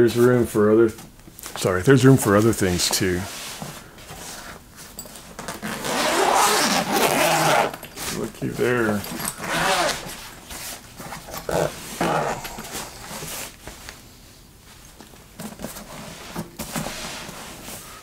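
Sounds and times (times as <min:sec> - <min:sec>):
nylon bag rustling: 0:04.8 - 0:13.6
zipper being pulled: 0:05.4 - 0:07.9, 0:09.2 - 0:10.3, 0:11.3 - 0:13.3.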